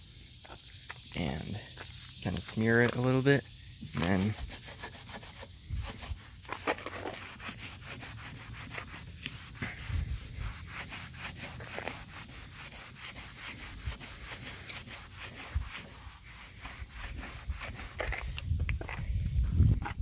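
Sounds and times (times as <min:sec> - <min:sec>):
towel rubbing car paint: 0:04.0 - 0:18.3.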